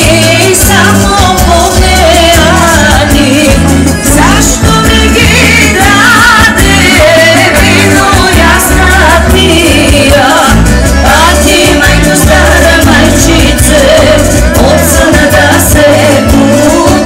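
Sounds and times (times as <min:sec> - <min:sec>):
drum kit: 0:00.0 - 0:17.0
electric guitar: 0:00.0 - 0:17.0
keyboard: 0:00.0 - 0:17.0
wind instrument: 0:03.8 - 0:09.1
person singing ornamented melody: 0:05.0 - 0:08.8.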